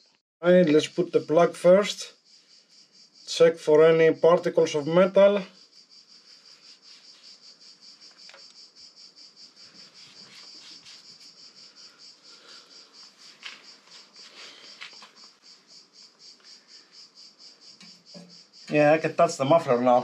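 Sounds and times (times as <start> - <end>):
cricket chirping: 0.0 - 20.0
faint clicks: 8.1 - 8.6.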